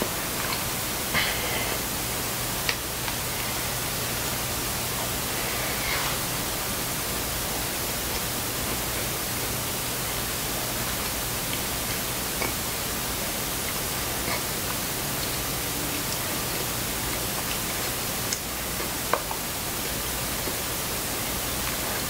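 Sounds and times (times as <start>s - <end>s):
steady hiss: 0.0s - 22.0s.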